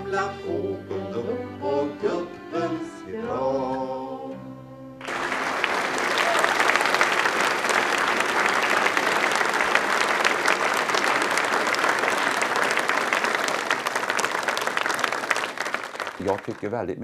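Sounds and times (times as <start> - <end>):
audience applauding: 5.0 - 17.0.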